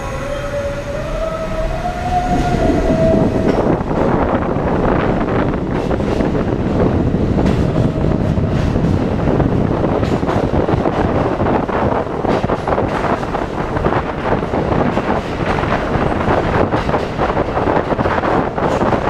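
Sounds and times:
subway train wheels running: 0.0 - 19.0
wind buffeting microphone: 0.0 - 19.0.

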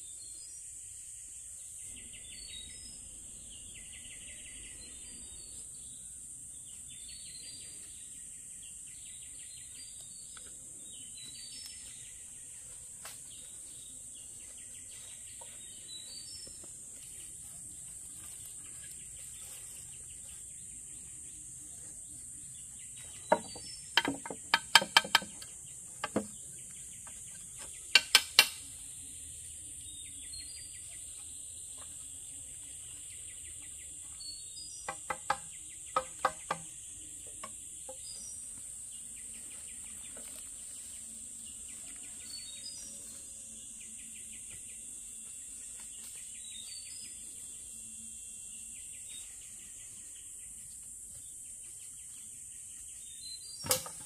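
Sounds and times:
insect chirping calls: 0.0 - 12.3, 13.0 - 54.0
insects buzzing: 0.0 - 54.0
sharp knocks: 23.3 - 26.3.

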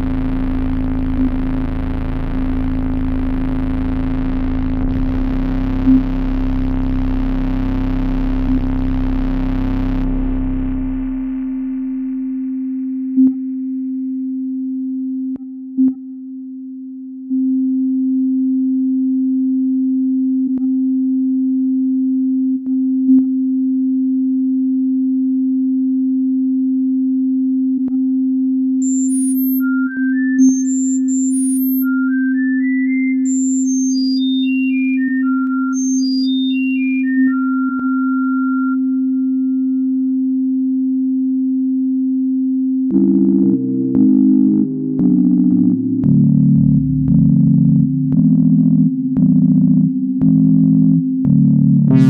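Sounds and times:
steady low sine tone: 0.0 - 52.0
high beeping sine tones: 28.8 - 40.1, 42.9 - 52.0.

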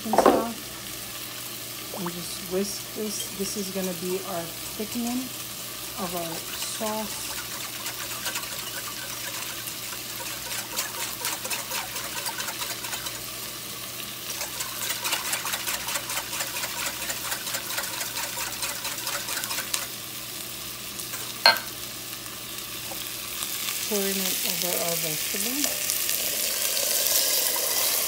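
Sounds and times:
whisk ticking against glass bowl: 6.3 - 13.2, 14.4 - 19.8.

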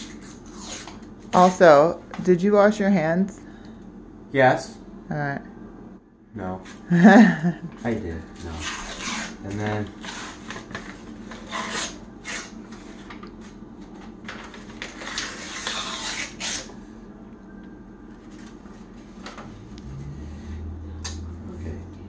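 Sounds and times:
paper wrapper tearing: 8.4 - 12.6, 14.3 - 16.7.

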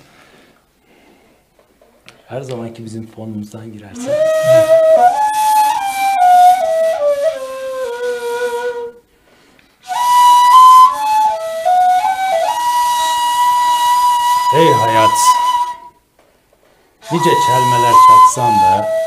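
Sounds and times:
end-blown flute melody: 4.0 - 9.0, 9.9 - 16.0, 17.0 - 19.0.

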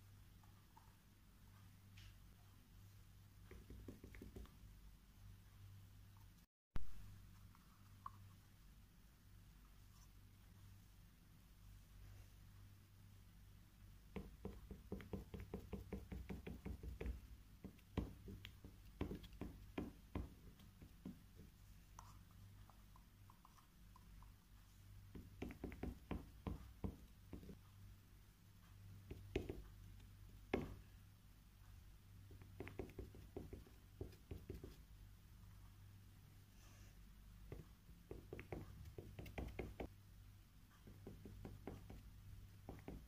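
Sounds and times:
pencil end tapping on paper: 3.5 - 4.5, 14.1 - 21.2, 25.1 - 27.6, 29.1 - 29.6, 30.5 - 30.8, 32.3 - 34.8, 37.5 - 39.9, 40.9 - 43.0.

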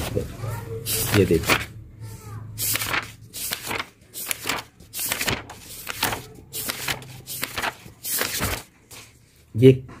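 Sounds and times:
book pages turning: 0.9 - 1.7, 2.6 - 9.5.

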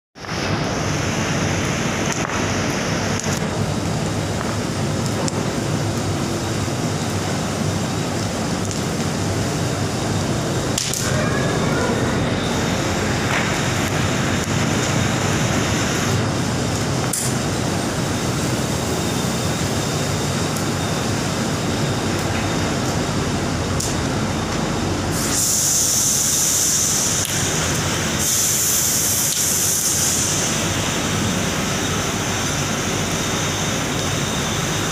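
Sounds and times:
furnace flames burning: 0.2 - 34.9
loud high hiss: 9.2 - 34.9.

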